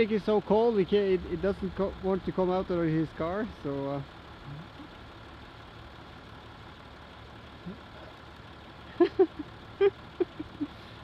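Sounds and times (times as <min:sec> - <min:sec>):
suv engines idling: 0:00.0 - 0:11.0.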